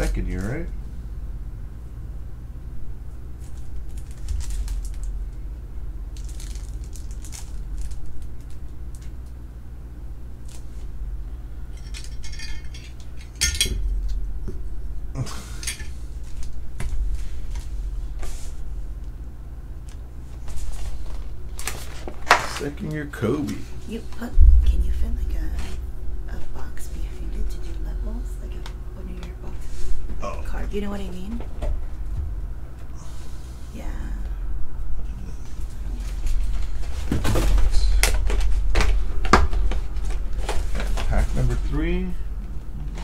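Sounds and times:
steady low hum: 0.0s - 43.0s
plastic bag crinkling: 3.4s - 5.4s, 6.1s - 9.1s.

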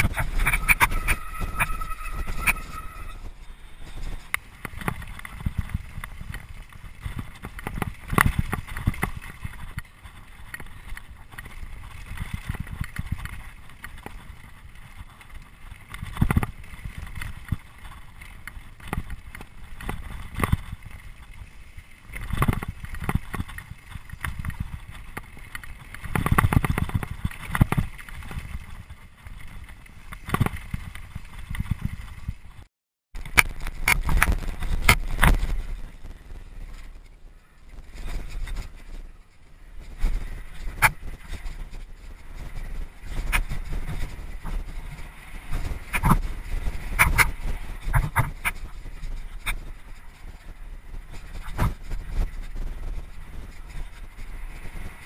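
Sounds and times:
tyres rumbling on loose stones: 0.0s - 55.0s
bike knocking and rattling: 3.8s - 32.6s.

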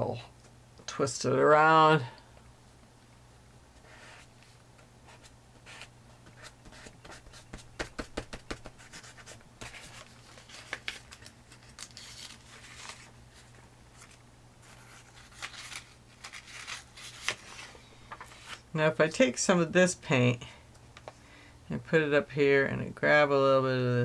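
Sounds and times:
paper sheets rustling: 5.6s - 18.6s.

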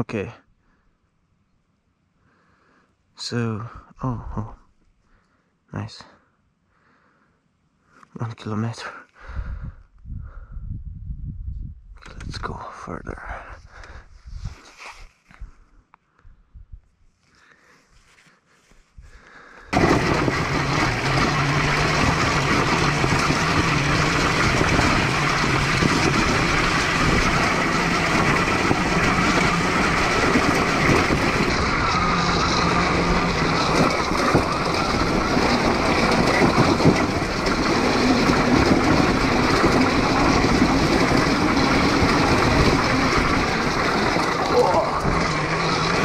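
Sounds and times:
wind rushing on microphone: 9.2s - 12.6s, 13.6s - 14.7s, 19.8s - 46.0s
tyre noise on dirt trail: 17.1s - 46.0s.

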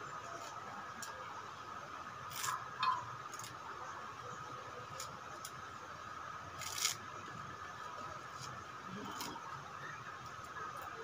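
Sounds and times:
faint steady hum: 0.0s - 11.0s
leaves rustling and stems snapping: 6.6s - 7.0s.

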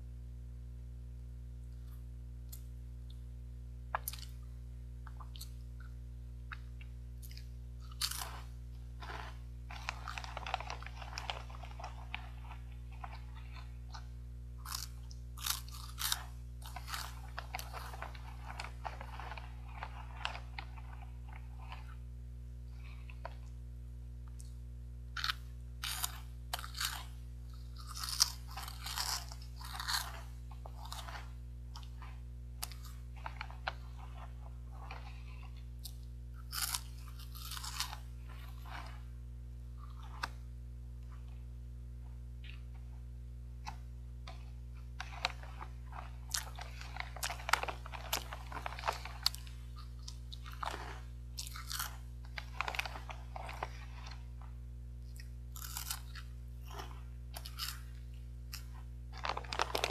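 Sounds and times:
low electrical hum: 0.0s - 59.9s
crunching and chewing snack: 3.9s - 23.6s, 24.2s - 59.9s
plastic bag crinkling: 8.0s - 13.9s, 14.6s - 22.0s, 45.0s - 54.4s, 58.6s - 59.9s.

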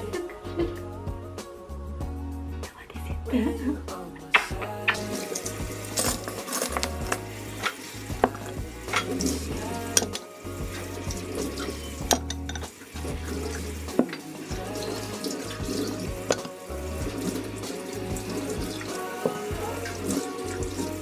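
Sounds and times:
background music with bass line: 0.0s - 21.0s
cutlery and ceramic bowls clinking: 4.4s - 10.3s, 11.6s - 12.7s, 16.3s - 16.6s.

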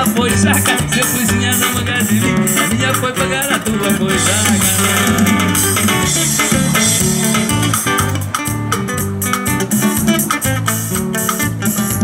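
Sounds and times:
acoustic guitar strumming: 0.0s - 12.0s
drum kit with cymbals: 0.0s - 12.0s
electric bass: 0.0s - 12.0s.

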